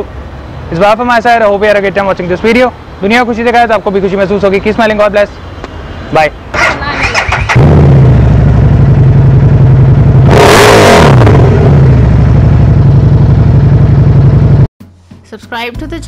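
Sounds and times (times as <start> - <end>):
motorcycle engine idling: 12.0 - 14.7.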